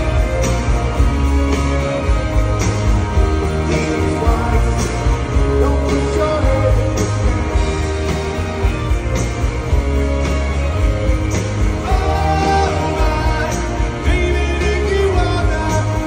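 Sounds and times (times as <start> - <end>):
live rock band: 0.0 - 16.0
person singing: 3.3 - 7.6, 11.8 - 16.0.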